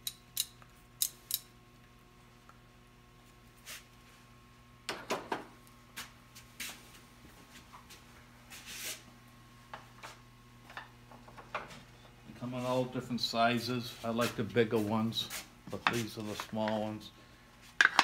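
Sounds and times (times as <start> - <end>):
steady electrical hum: 0.0 - 18.0.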